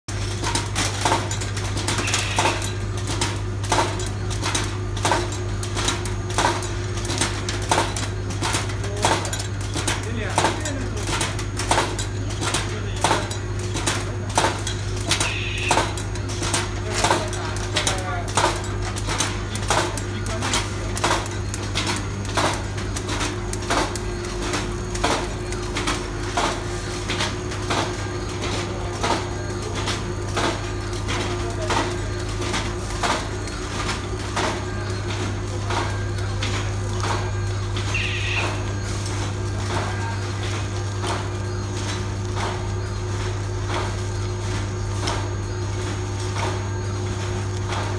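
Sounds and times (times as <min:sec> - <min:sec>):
sharp machine clack: 0:00.1 - 0:45.2
packing machine humming: 0:00.1 - 0:47.9.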